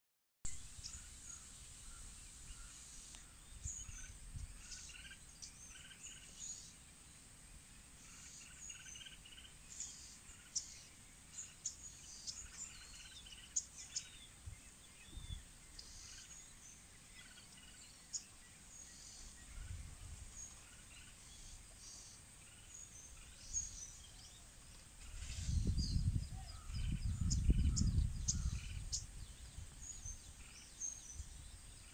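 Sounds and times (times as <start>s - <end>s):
bird chirps and calls: 0.5s - 6.8s, 8.0s - 31.9s.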